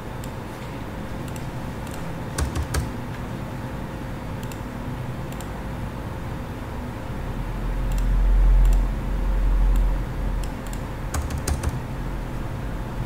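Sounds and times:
mouse and keyboard clicks: 1.2s - 2.9s, 10.4s - 11.8s.

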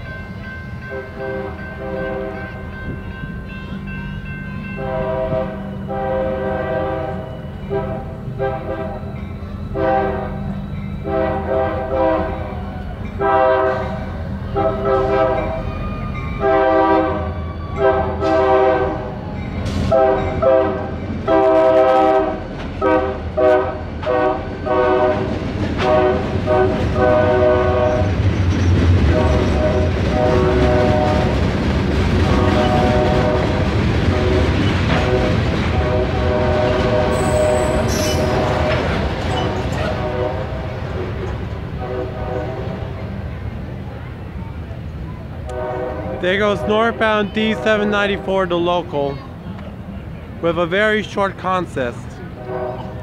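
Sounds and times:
locomotive rumbling past: 0.0s - 53.0s
locomotive air horn blasts: 0.9s - 2.6s, 4.8s - 15.7s, 16.4s - 19.2s, 19.8s - 28.2s, 29.1s - 31.4s, 32.2s - 40.8s, 41.7s - 42.9s, 45.4s - 48.5s, 52.2s - 53.0s
freight cars rolling over rails: 9.1s - 53.0s.

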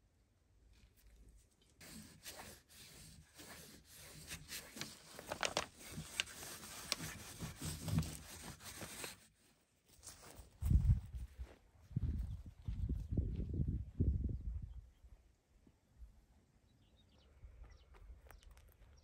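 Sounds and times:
cloth rubbing on axe head: 1.8s - 9.4s.

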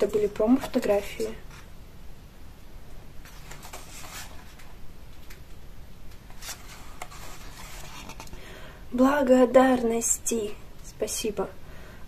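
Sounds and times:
page rustling: 3.2s - 5.4s, 6.1s - 8.4s.

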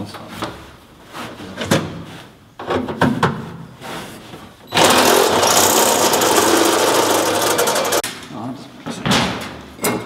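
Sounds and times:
power tool running: 4.7s - 8.0s.

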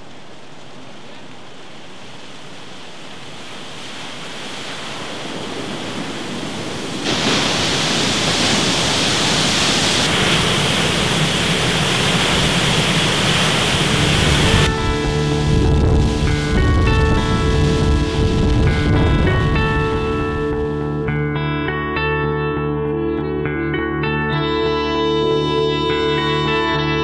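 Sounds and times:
water rushing down spillway: 0.3s - 20.2s.

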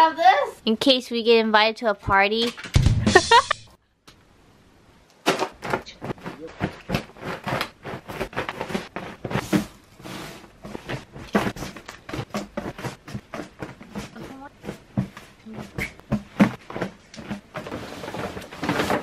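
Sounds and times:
fabric rustling and swishing: 5.4s - 19.0s.

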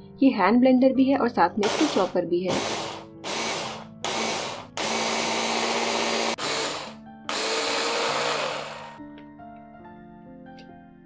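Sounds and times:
hand blender motor whirring: 1.6s - 9.0s.

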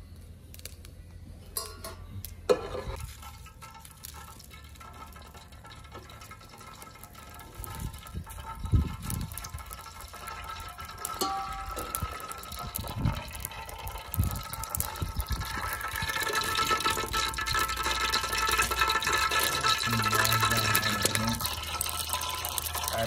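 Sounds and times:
oil crackling and sizzling: 0.0s - 1.0s, 1.6s - 23.0s
metal ladle knocking a pot: 9.2s - 22.9s.

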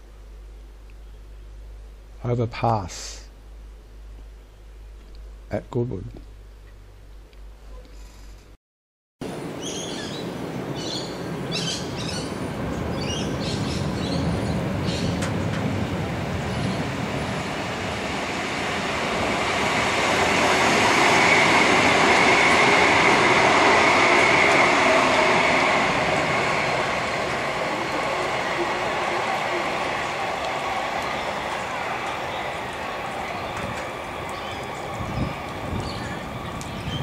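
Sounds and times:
train wheels rumbling on track: 11.2s - 37.0s.

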